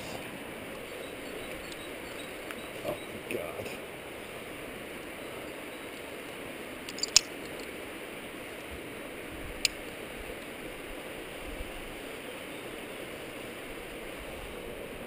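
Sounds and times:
sharp clicks: 6.9 - 7.7.

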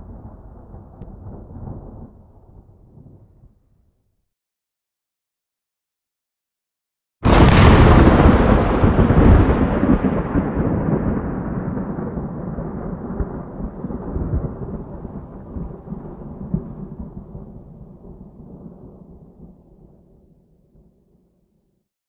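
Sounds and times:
deep thunder-like rumble: 0.0 - 3.6, 7.3 - 20.0.

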